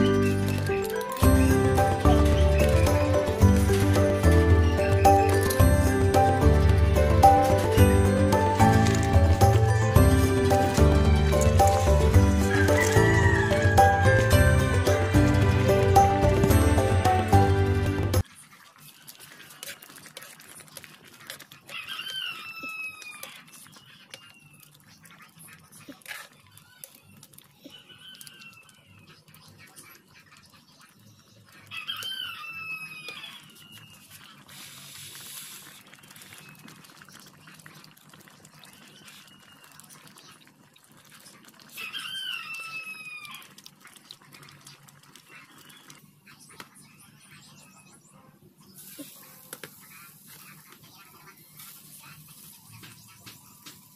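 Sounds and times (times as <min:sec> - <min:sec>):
rooster crowing: 0:12.3 - 0:14.6, 0:21.7 - 0:23.2, 0:31.7 - 0:33.5, 0:41.7 - 0:43.4.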